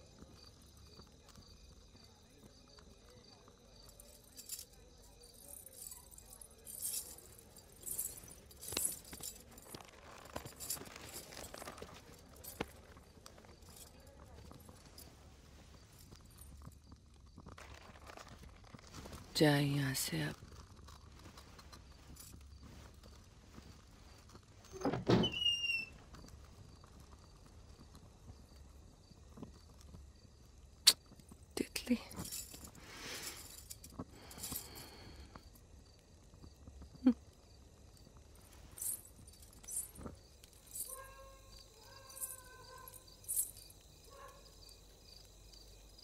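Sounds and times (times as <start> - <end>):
rustling and crunching: 3.8 - 25.2, 25.9 - 46.0
high-pitched squeak: 24.7 - 26.0.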